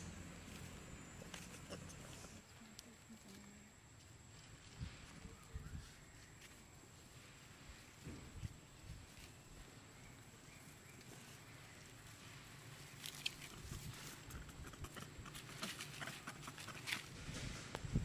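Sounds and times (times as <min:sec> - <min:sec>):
dry leaves rustling and crackling: 0:08.6 - 0:14.2.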